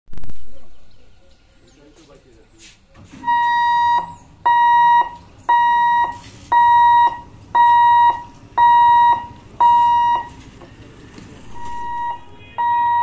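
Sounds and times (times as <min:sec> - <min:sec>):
level crossing warning beeps: 0:03.1 - 0:10.4, 0:11.5 - 0:13.0.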